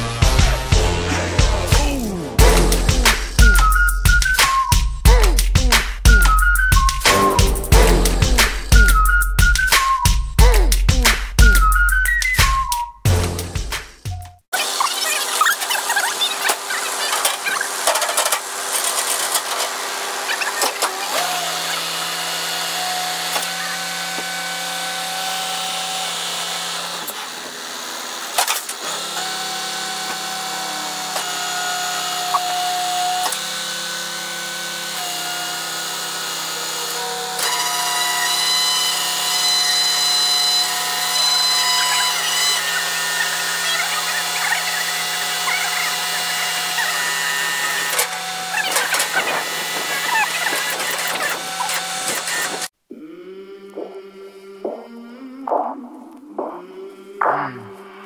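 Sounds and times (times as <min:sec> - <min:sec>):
hydraulic winch whining: 0:06.1 - 0:07.5, 0:14.6 - 0:52.7.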